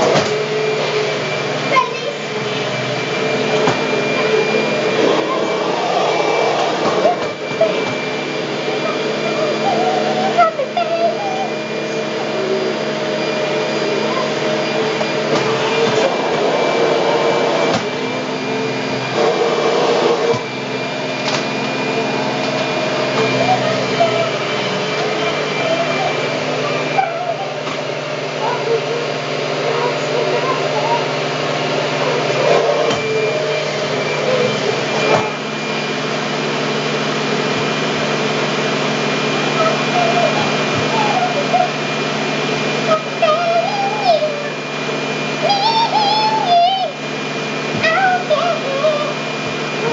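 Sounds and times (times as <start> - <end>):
vacuum cleaner knocks: 0.0 - 0.5, 3.4 - 4.2, 6.6 - 8.2, 17.7 - 18.1, 20.2 - 20.6
vacuum cleaner motor hum: 0.0 - 49.9.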